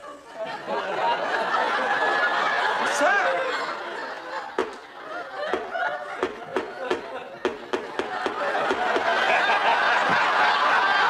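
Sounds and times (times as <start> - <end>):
studio audience laughing: 0.0 - 11.0
short sharp knocks: 4.6 - 4.8.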